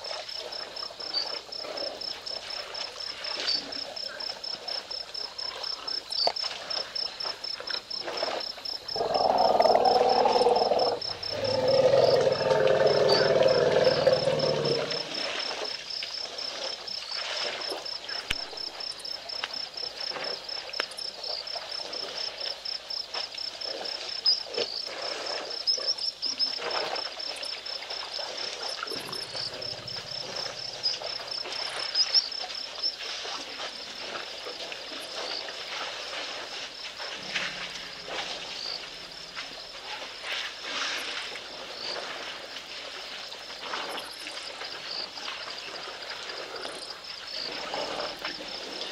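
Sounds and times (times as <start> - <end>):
insects chirping: 0.0 - 48.9
low animal call: 9.0 - 15.5, 28.9 - 31.6.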